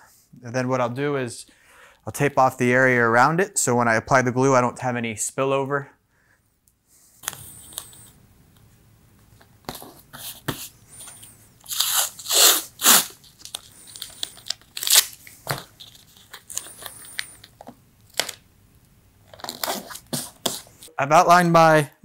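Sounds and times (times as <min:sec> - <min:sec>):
masking tape ripping off roll: 0:11.6 - 0:17.4.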